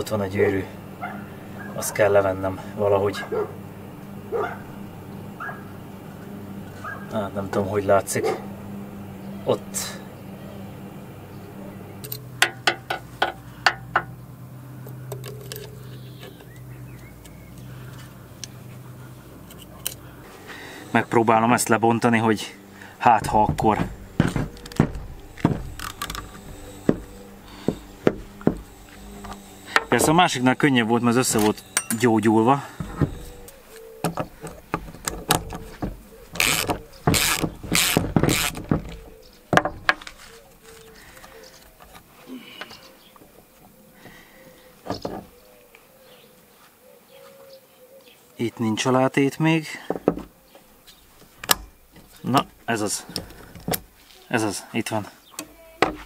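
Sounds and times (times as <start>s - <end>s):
low hum: 0.0s - 44.8s
ratchet wrench rasps: 24.2s - 33.6s, 36.3s - 38.7s.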